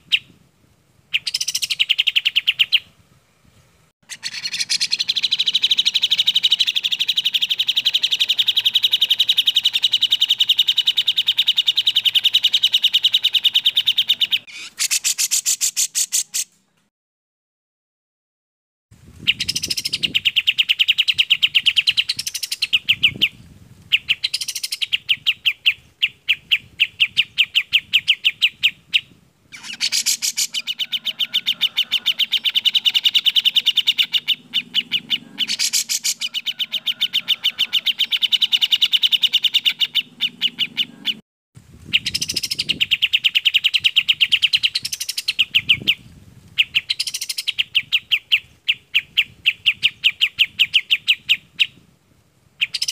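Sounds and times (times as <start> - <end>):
bulbul song: 1.1 - 2.9, 4.0 - 16.5, 19.2 - 41.2.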